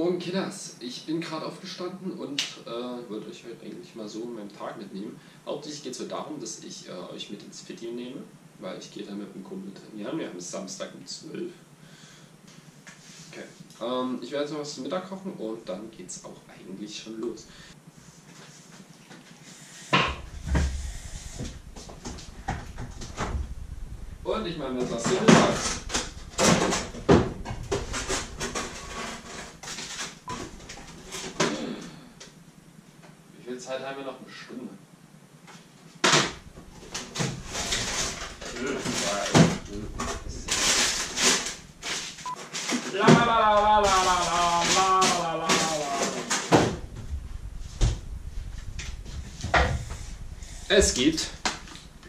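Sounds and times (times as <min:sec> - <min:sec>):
kitchen items knocking and rattling: 0:36.2 - 0:42.1
cupboards and drawers knocking shut: 0:45.6 - 0:46.9.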